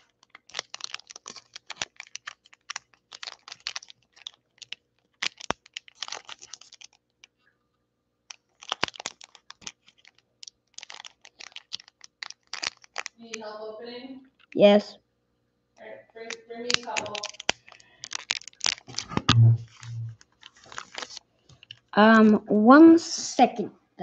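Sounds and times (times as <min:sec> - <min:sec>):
foil wrapper crinkling: 0:00.0 - 0:07.4, 0:08.3 - 0:13.4, 0:16.2 - 0:22.0.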